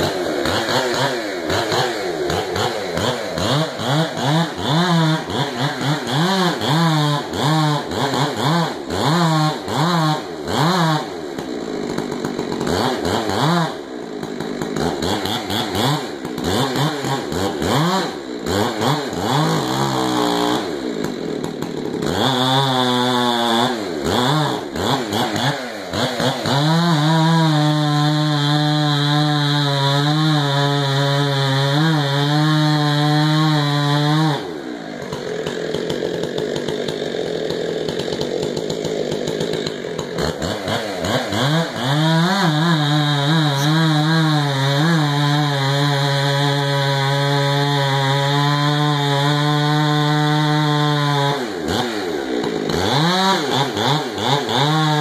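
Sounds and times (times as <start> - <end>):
chainsaw revving: 0.0 - 55.0.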